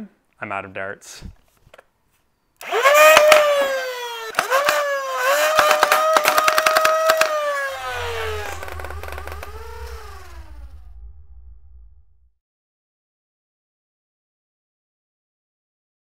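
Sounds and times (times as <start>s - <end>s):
solenoid pusher clicking rapidly: 2.6s - 7.5s
flywheel motors whining: 2.6s - 10.8s
low hum: 7.4s - 12.4s.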